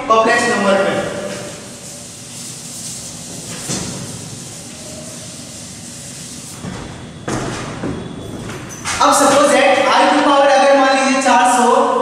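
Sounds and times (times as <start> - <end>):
eraser rubbing on chalkboard: 1.3 - 6.6.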